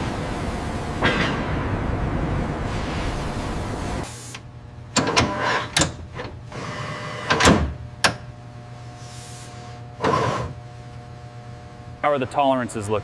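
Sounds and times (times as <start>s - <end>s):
loud rushing noise: 0.0s - 4.0s
machine hum: 0.0s - 13.0s.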